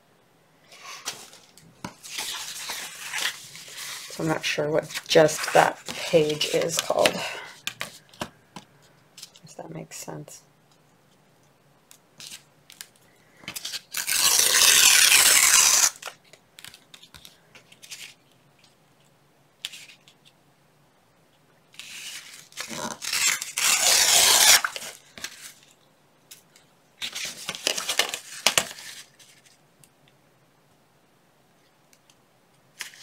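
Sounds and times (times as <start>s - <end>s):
paper rustling: 0.9s - 8.3s, 27.0s - 29.6s
paper tearing: 2.0s - 7.2s, 13.6s - 16.2s, 21.8s - 25.6s.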